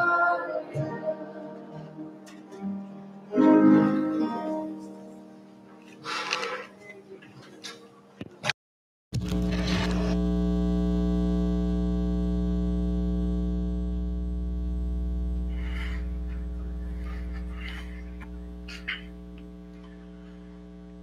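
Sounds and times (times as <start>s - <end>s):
electrical mains hum: 9.2s - 21.0s.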